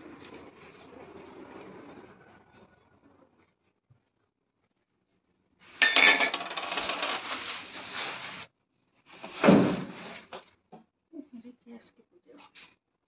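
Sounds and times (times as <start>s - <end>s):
clattering and rustling: 5.7s - 8.5s, 9.1s - 10.6s.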